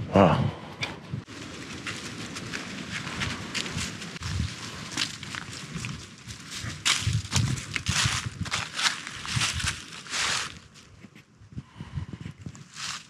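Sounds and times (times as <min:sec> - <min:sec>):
footsteps crunching dry leaves: 0:01.3 - 0:10.9, 0:12.6 - 0:13.0.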